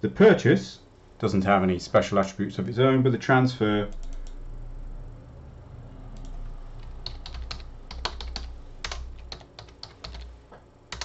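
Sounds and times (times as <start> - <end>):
typing on computer keyboard: 6.2 - 10.3.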